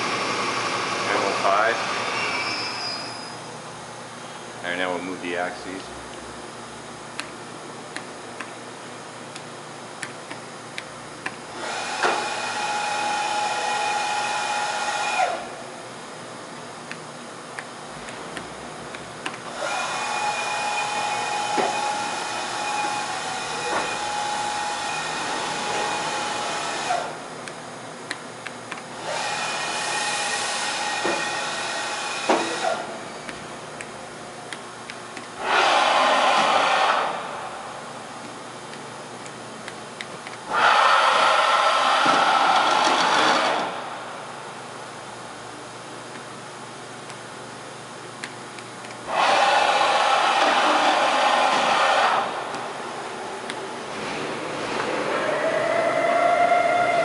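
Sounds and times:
machine servo drives whining: 19.5s - 27.2s, 29.0s - 33.0s, 40.5s - 43.8s, 49.1s - 52.4s.

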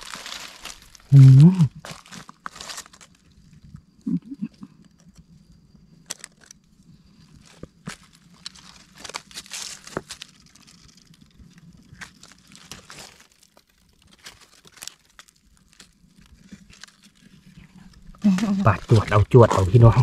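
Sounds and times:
dry leaves crackling and rustling: 0.0s - 3.9s, 6.0s - 20.0s
brief voice: 1.1s - 1.7s, 18.2s - 20.0s.

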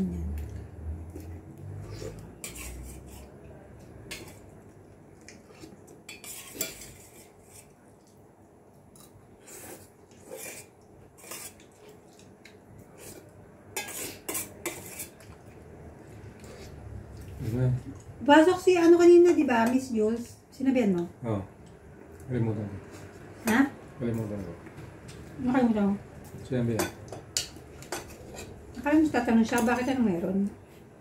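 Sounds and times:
cutlery clinking on plates: 13.8s - 15.2s, 26.7s - 28.6s.

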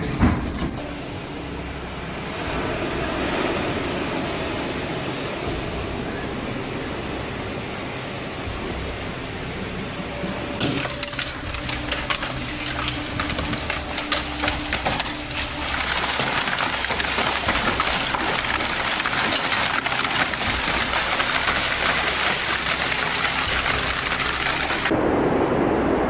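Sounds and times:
rain: 0.8s - 26.0s
hail striking wooden deck: 10.6s - 24.9s.

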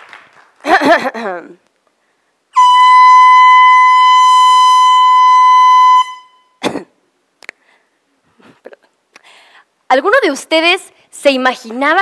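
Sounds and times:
air horn long steady note: 2.6s - 6.6s.

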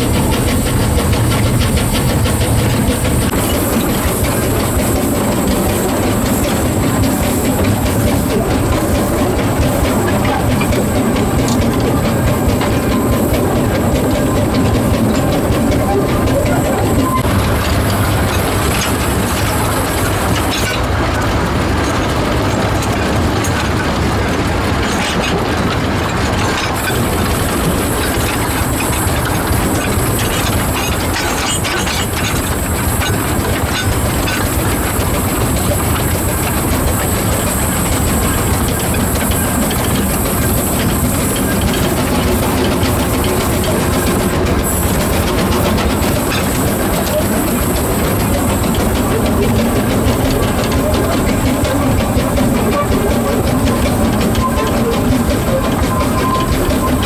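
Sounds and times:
train wheels clattering on rails: 0.0s - 57.0s.

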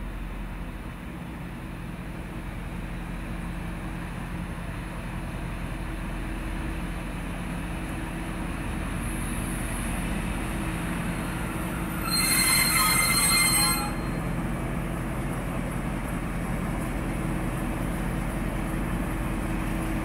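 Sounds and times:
locomotive engine running: 0.0s - 20.0s
high metallic wheel squeal: 10.6s - 14.6s.

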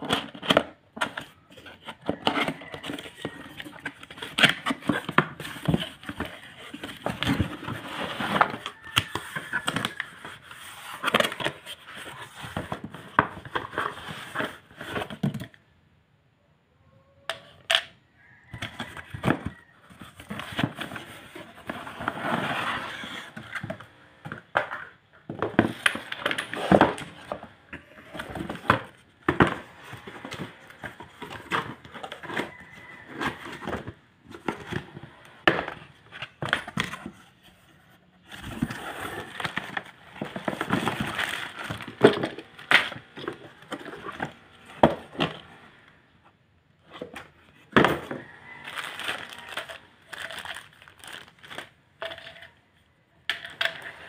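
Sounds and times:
cardboard scraping and rustling: 0.0s - 15.5s, 18.2s - 24.6s, 25.3s - 45.8s, 46.8s - 52.4s
plastic crinkling: 48.2s - 52.4s.

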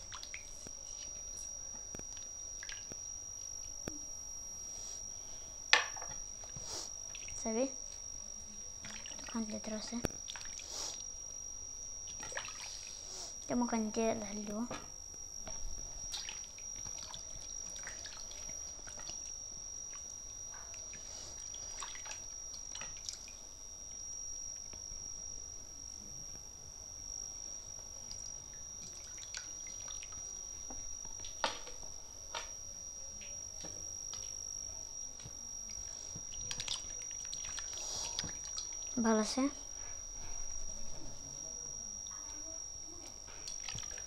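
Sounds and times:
water splashes and drips: 8.8s - 9.6s, 10.3s - 10.6s, 12.1s - 12.7s, 15.5s - 19.3s, 21.7s - 23.3s, 28.9s - 30.2s, 36.4s - 39.0s, 43.5s - 44.0s.

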